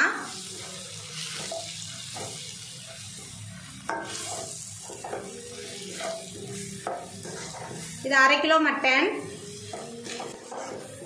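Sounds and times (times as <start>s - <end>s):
meat frying in oil: 0.0s - 11.0s
wooden spatula scraping: 5.3s - 8.1s, 9.6s - 11.0s.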